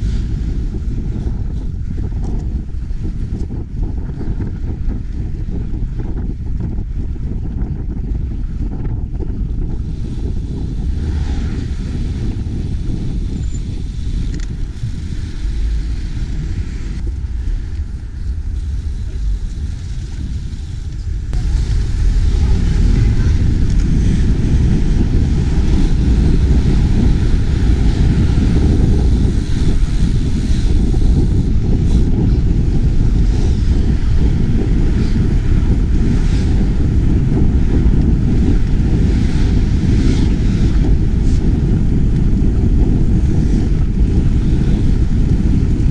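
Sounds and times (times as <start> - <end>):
wind buffeting microphone: 0.0 - 45.9
street traffic: 9.9 - 31.6.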